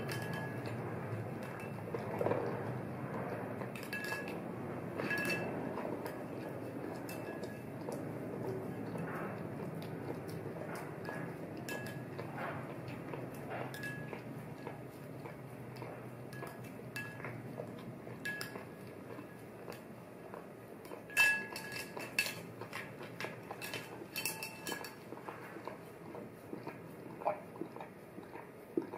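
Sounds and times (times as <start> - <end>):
spoon clinking on ceramic bowl: 0.0 - 0.8, 3.8 - 4.4, 5.0 - 8.0, 11.0 - 12.6, 13.3 - 14.7, 15.8 - 17.4, 18.1 - 19.2, 20.9 - 25.0.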